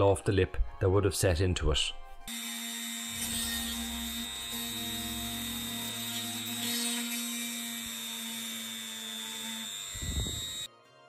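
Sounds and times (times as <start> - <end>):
background music: 0.0 - 11.0
rotary tool grinding plastic: 2.3 - 10.7.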